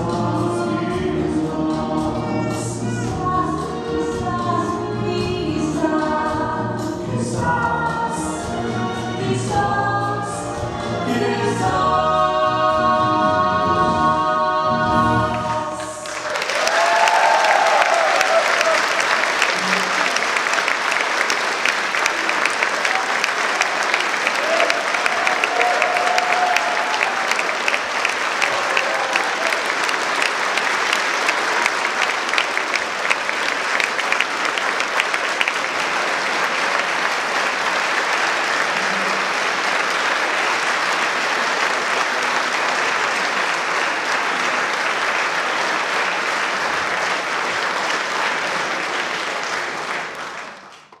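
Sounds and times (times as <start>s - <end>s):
audience applauding: 15.3s - 51.0s.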